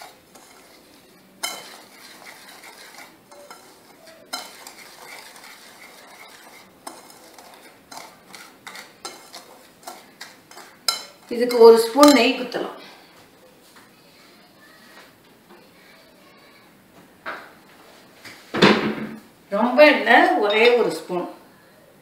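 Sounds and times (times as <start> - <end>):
whisk swishing dry mix: 0.0 - 12.2
whisk clinking against bowl: 0.0 - 12.4.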